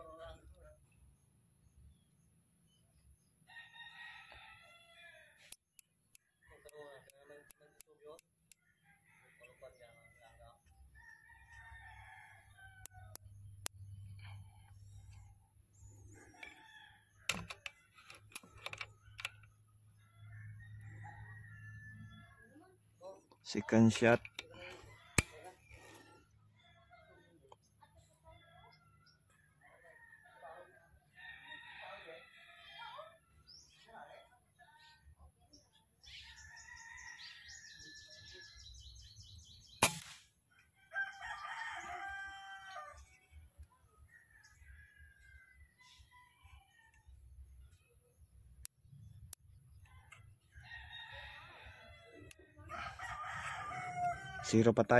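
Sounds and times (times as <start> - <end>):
rooster crowing: 3.5 - 5.5, 20.0 - 22.6, 29.6 - 33.0, 40.8 - 43.1, 50.0 - 54.9
quick sharp clicks: 39.8 - 40.2
air rifle shot: 39.8 - 40.3.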